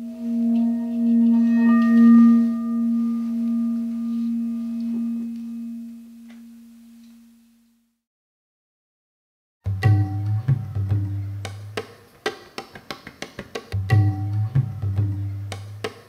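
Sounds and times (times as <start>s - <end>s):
deep bell-like tone: 0.0s - 7.4s.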